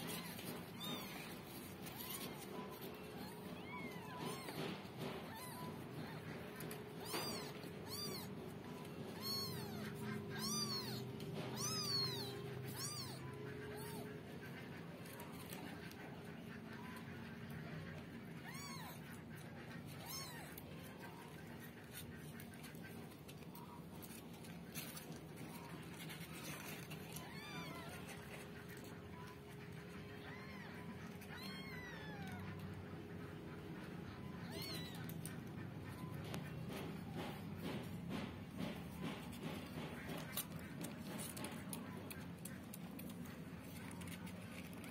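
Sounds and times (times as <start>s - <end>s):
kittens mewing: 0.0s - 44.9s.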